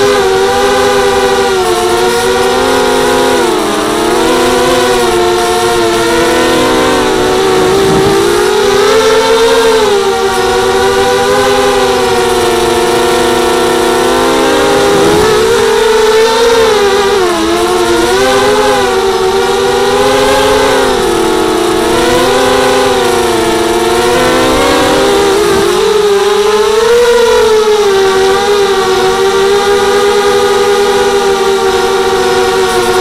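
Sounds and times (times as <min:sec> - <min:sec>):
quadcopter motors whining: 0:00.0 - 0:33.0.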